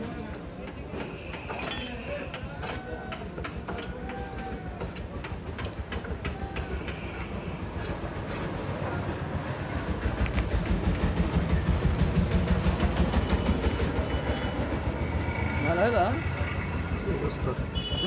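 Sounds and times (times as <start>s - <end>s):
light metal clinks: 1.6s - 2.2s.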